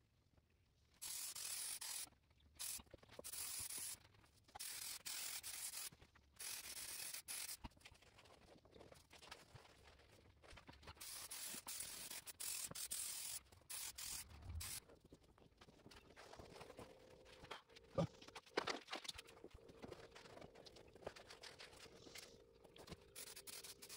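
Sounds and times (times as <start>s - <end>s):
spray can hissing bursts: 1.0s - 4.0s, 4.6s - 7.6s, 11.0s - 14.8s, 23.2s - 23.9s.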